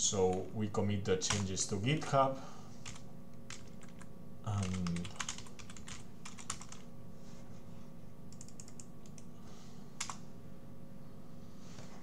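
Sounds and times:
faint steady hum: 0:00.0 - 0:12.0
computer keyboard keystrokes: 0:01.3 - 0:01.5, 0:02.8 - 0:06.9, 0:08.3 - 0:09.3, 0:10.0 - 0:10.2.

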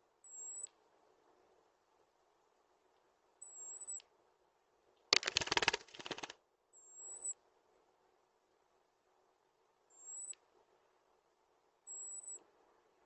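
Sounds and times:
bird tapping on camera: 0:05.2 - 0:06.3.

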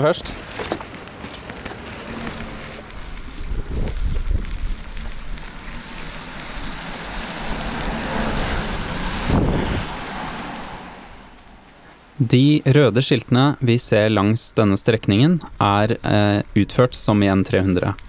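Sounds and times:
bicycle road noise: 0:00.0 - 0:18.0
wind buffeting microphone: 0:02.0 - 0:11.8.

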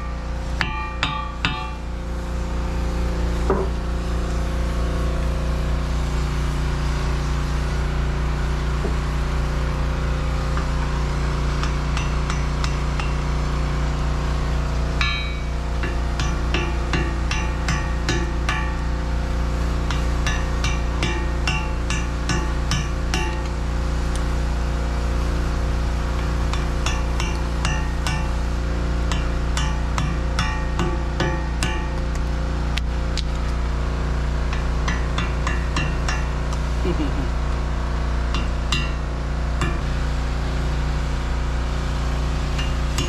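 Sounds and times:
hammer striking metal: 0:00.0 - 0:01.9, 0:11.6 - 0:13.2, 0:15.0 - 0:19.0, 0:19.9 - 0:23.5, 0:26.5 - 0:28.4, 0:29.1 - 0:32.0, 0:34.5 - 0:36.5, 0:38.3 - 0:39.9, 0:42.6 - 0:43.0
steady low hum: 0:00.0 - 0:43.0.

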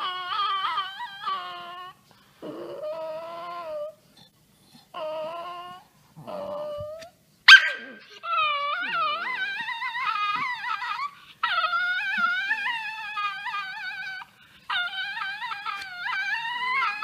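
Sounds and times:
small dog howling: 0:05.0 - 0:17.0
dog yelping: 0:07.5 - 0:17.0.

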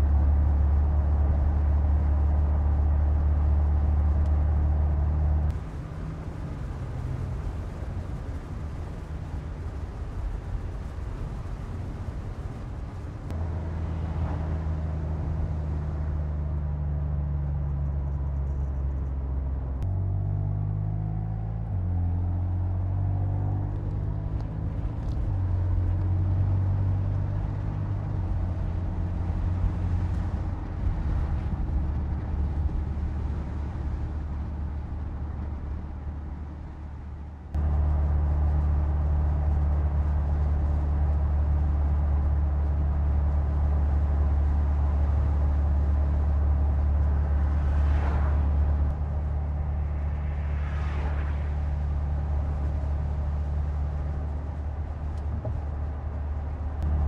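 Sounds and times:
car engine cruising: 0:00.0 - 0:57.0.

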